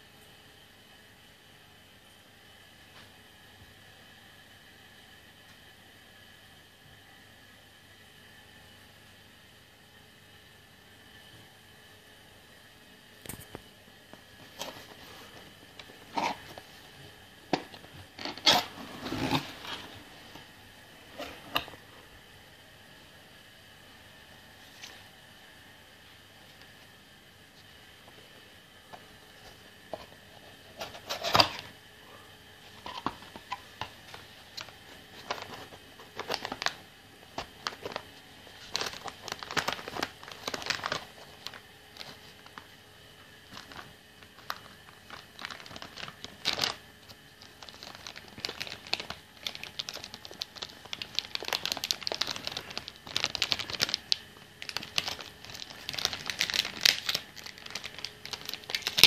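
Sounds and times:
plastic bag crinkling: 32.7 - 42.6, 43.4 - 59.0.

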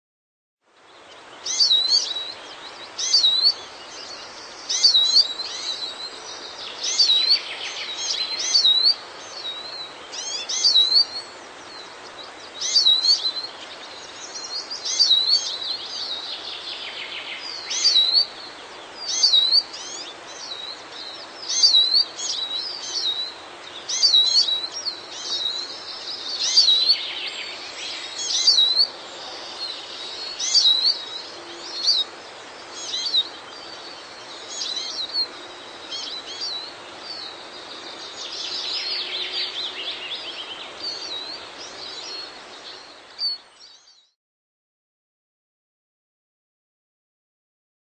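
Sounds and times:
bird whistled calls: 1.4 - 2.3, 3.0 - 3.6, 6.8 - 11.3, 17.5 - 18.3, 19.0 - 20.7, 23.9 - 25.6, 28.2 - 28.9, 30.3 - 31.1, 32.8 - 33.3.

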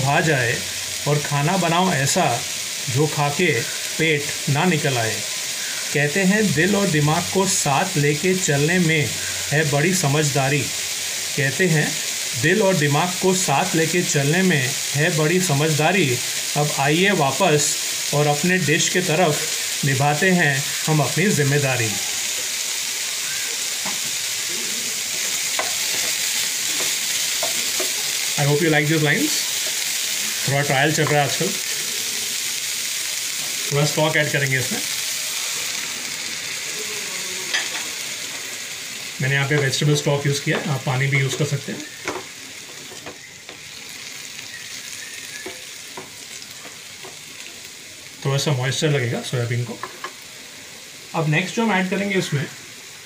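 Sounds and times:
food sizzling in oil: 0.0 - 53.0
spatula knocking pan: 25.5 - 28.2, 40.4 - 43.7.

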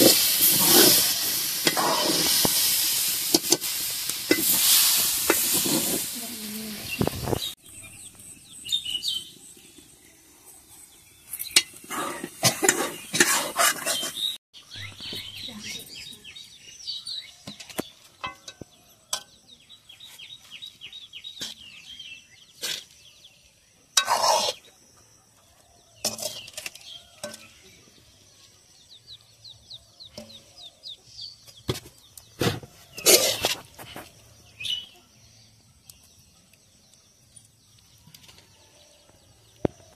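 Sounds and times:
metal ladle scraping metal pot: 0.0 - 6.2, 11.3 - 14.3, 24.0 - 24.7, 26.0 - 27.6, 33.0 - 33.7
small birds chirping: 0.0 - 39.9.

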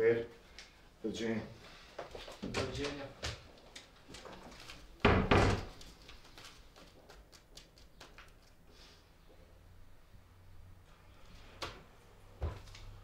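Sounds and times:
door slamming: 5.0 - 5.7.

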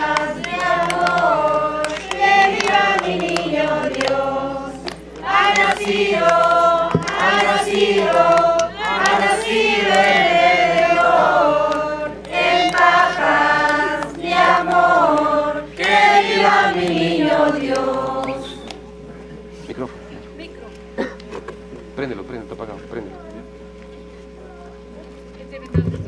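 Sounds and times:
group singing a carol: 0.0 - 19.0.

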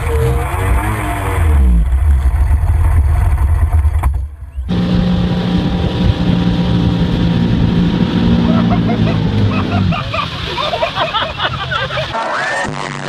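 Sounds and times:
boat engine rumble: 0.0 - 13.0
wind buffeting: 4.7 - 12.1
tow boat engine running: 4.7 - 12.2
water rushing: 4.7 - 13.0.

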